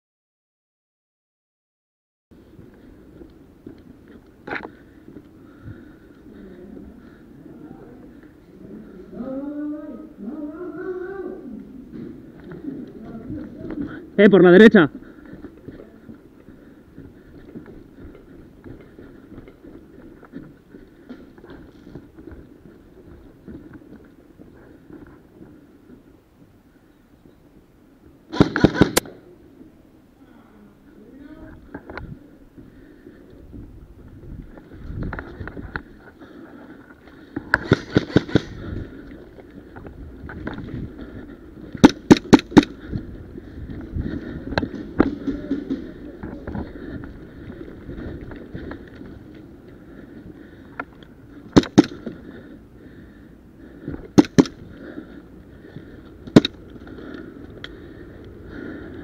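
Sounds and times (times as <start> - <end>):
footsteps on concrete: 2.4 - 7.1, 14.9 - 26.6
airsoft pistol shots: 28.3 - 29.1, 41.8 - 42.8, 51.5 - 52.0, 54.2 - 54.6
airsoft gun shots: 28.3 - 29.2, 37.6 - 38.5, 41.8 - 42.8, 51.5 - 52.1, 54.2 - 54.6.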